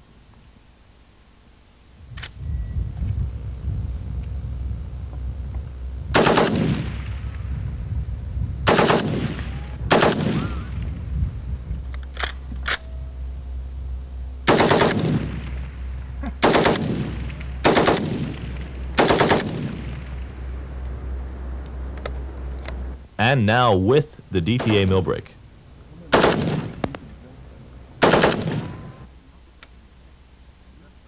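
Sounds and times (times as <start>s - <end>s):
rifle automatic bursts: 6.1s - 7.4s, 8.6s - 10.8s, 14.4s - 20.4s, 26.1s - 26.9s, 28.0s - 29.0s
gunfire echo: 6.1s - 7.5s, 8.6s - 10.9s, 14.4s - 20.4s, 26.1s - 26.9s, 28.0s - 28.9s.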